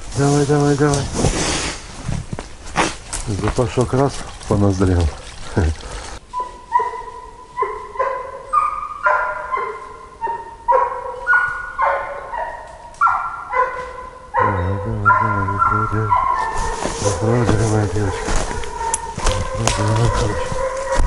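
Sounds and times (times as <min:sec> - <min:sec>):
hound baying: 0:06.4 - 0:21.0
man's voice: 0:14.4 - 0:16.3, 0:17.0 - 0:18.3, 0:19.3 - 0:20.6.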